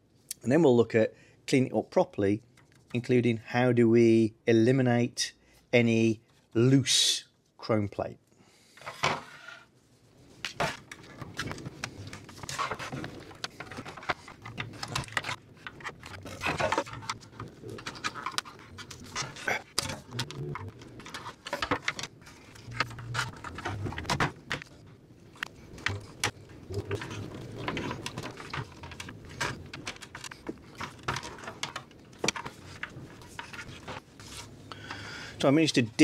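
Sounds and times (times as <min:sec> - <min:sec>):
pick tool scraping and clicking: 0:11.4 - 0:24.7.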